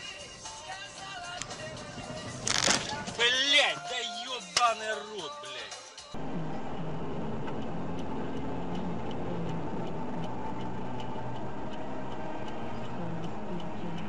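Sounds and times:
car road and engine noise: 0:00.0 - 0:03.4, 0:06.2 - 0:14.0
light rhythmic ticking: 0:06.5 - 0:14.0.

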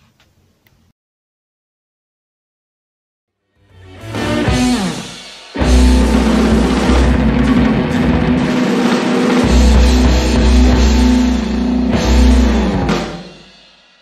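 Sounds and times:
loud rock music with drums: 0:03.8 - 0:14.0.

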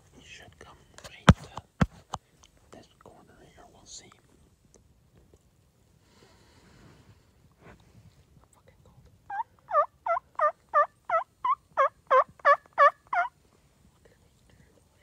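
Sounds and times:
turkey yelps: 0:09.3 - 0:13.3.

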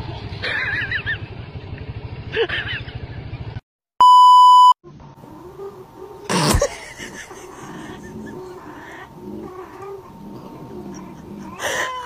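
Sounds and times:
scooter engine running: 0:00.0 - 0:03.5
loud electronic beep: 0:04.0 - 0:04.8.

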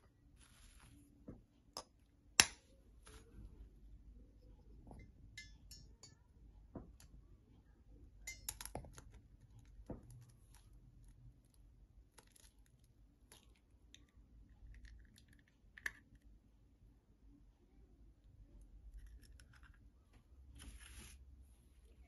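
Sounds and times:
eggshell cracking by fingers: 0:12.1 - 0:16.3.

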